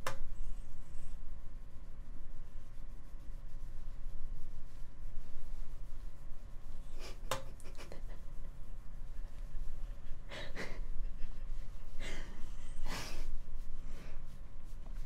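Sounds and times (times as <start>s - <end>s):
breathy laughter: 10.0s - 13.2s.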